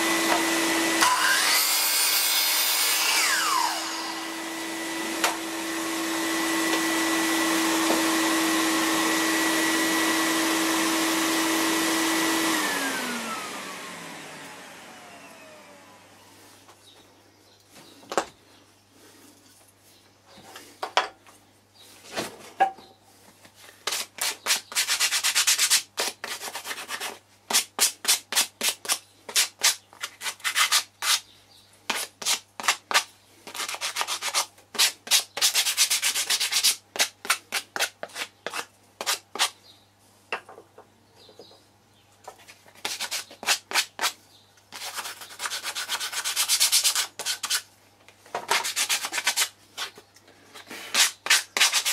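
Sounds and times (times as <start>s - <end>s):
wood being sanded by hand: 23.8s - 31.2s, 31.9s - 39.6s, 42.7s - 44.2s, 44.8s - 47.7s, 48.5s - 49.6s, 50.6s - 51.9s.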